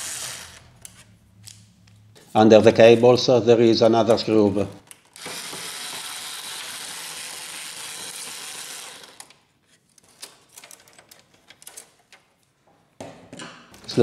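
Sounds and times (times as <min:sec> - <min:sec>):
electric screwdriver running: 0:00.0 - 0:00.7, 0:05.2 - 0:09.3.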